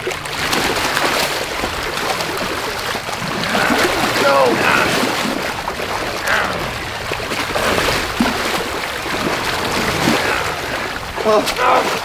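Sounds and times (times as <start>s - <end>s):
shallow water splashing: 0.0s - 12.0s.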